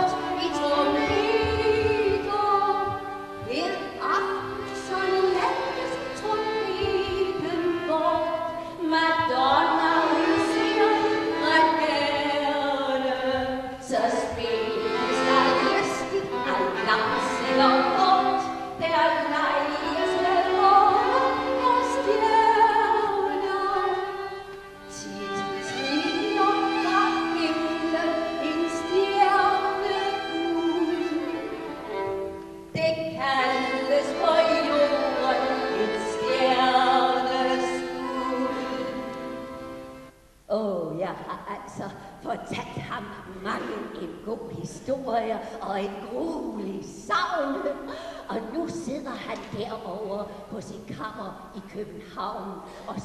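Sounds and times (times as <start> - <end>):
woman singing: 0.0 - 39.3, 40.5 - 53.0
violin accompaniment: 0.0 - 40.4.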